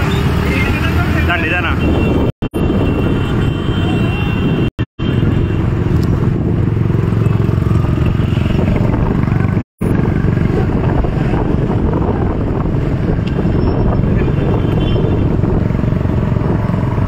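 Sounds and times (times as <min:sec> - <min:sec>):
motorcycle engines running: 0:05.1 - 0:17.0.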